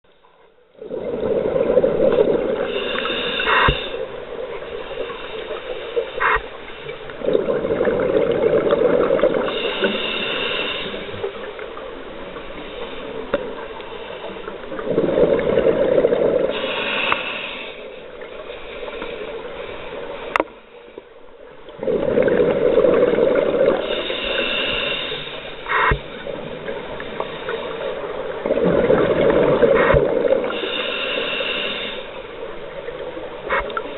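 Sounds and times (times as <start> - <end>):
exhaled bubbles rushing underwater: 0.8 - 5.5, 7.1 - 10.1, 14.5 - 16.8, 21.7 - 25.1, 25.7 - 30.8
regulator hiss: 2.6 - 7.1, 9.4 - 11.5, 16.5 - 20.9, 23.8 - 28.3, 30.4 - 32.4.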